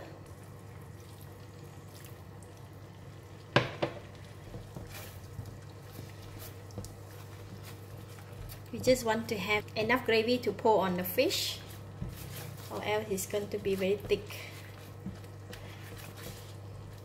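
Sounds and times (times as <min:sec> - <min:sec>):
sauce simmering: 0:00.0 - 0:09.9, 0:10.5 - 0:17.0
spatula stirring sauce: 0:04.0 - 0:09.1, 0:11.0 - 0:17.0.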